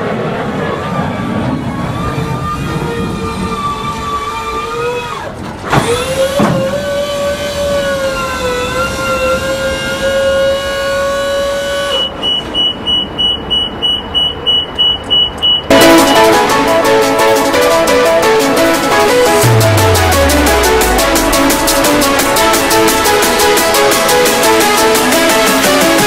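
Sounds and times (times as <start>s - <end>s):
hydraulic pump whining: 3.6s - 10.0s
high alarm beeping: 12.6s - 18.0s.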